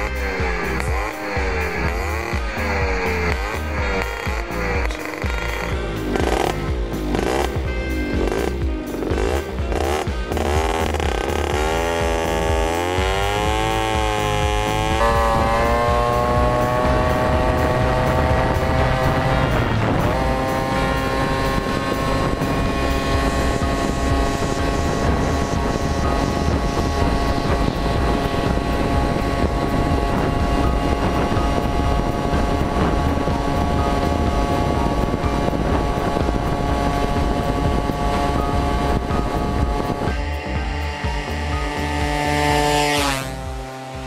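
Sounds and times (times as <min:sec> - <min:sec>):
moped engine at high revs: 0:00.0 - 0:44.0
wind on microphone: 0:11.6 - 0:43.6.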